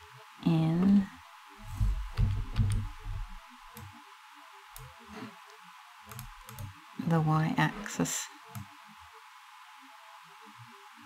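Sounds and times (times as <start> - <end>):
faint background music: 0.0 - 11.0
computer mouse clicks: 2.2 - 3.9, 6.1 - 6.7, 8.5 - 8.7.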